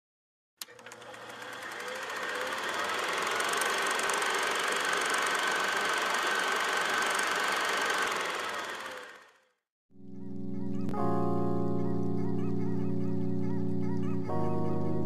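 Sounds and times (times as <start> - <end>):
film projector clatter and whine: 0.6 - 9.6.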